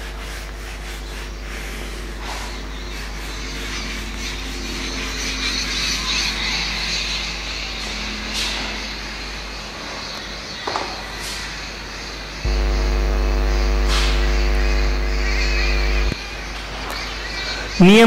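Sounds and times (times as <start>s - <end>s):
duster rubbing on whiteboard: 0.0s - 4.4s
steady electrical hum: 12.3s - 18.0s.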